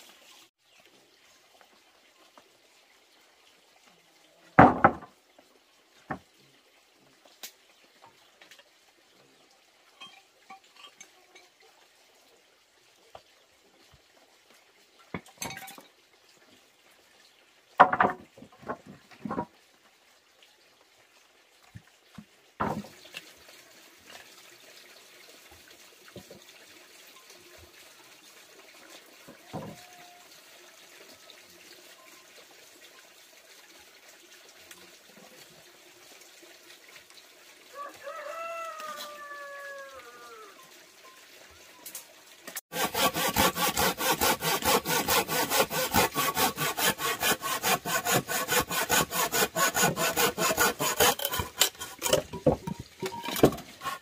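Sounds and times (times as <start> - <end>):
wooden planks knocking on stone: 4.6 - 5.1, 17.8 - 19.5, 51.2 - 53.6.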